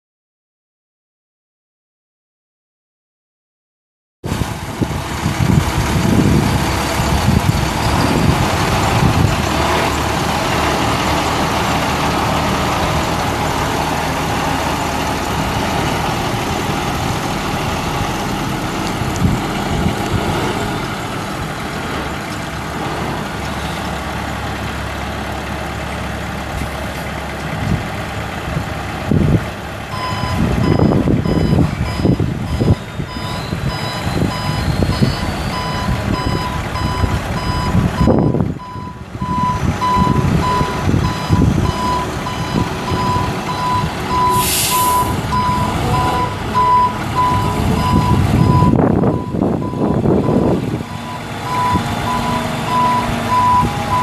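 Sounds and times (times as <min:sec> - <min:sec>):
diesel truck engine drone: 0:04.2 - 0:54.0
backup alarm beeping: 0:30.0 - 0:54.0.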